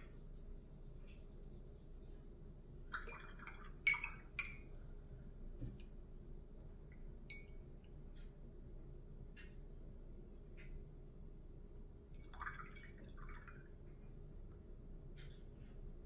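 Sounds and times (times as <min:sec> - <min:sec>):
paintbrush splashing in water jar: 0:02.9 - 0:04.8.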